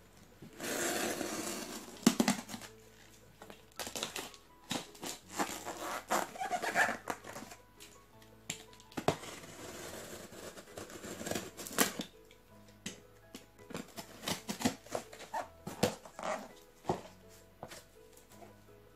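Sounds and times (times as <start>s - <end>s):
knife scraping and tearing tape: 0.6s - 2.7s, 3.8s - 7.6s, 9.0s - 12.1s, 13.7s - 17.0s.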